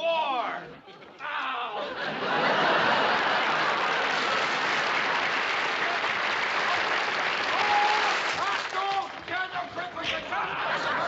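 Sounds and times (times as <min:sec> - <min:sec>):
studio audience applauding: 0:02.3 - 0:11.0.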